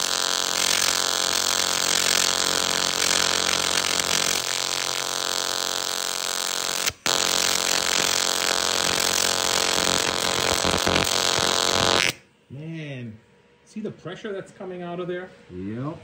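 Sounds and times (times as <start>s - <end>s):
welding arc buzzing with hiss: 0.0s - 12.2s.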